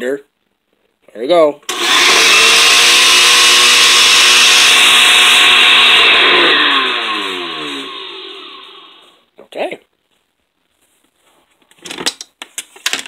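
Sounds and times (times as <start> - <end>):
blender motor running and spinning down: 1.7 - 9.1.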